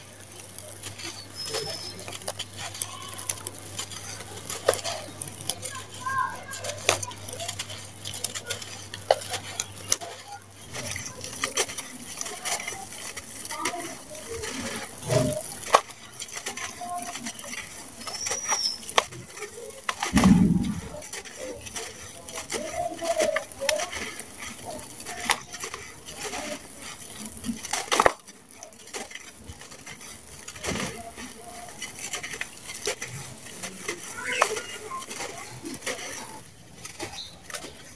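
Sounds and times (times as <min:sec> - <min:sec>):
dry cement mix falling: 0:00.0 - 0:16.6, 0:17.3 - 0:37.9
grains and pebbles clicking: 0:00.0 - 0:37.9.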